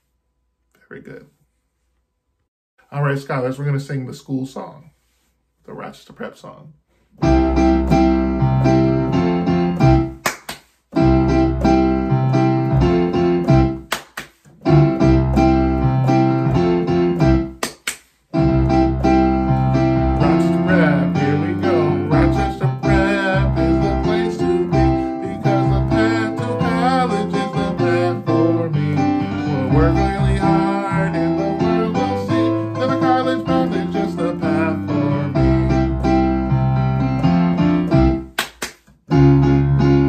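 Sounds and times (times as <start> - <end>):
electric piano chords: 7.2 - 10.2, 11.0 - 13.9, 14.6 - 17.6, 18.3 - 38.4, 39.0 - 40.0.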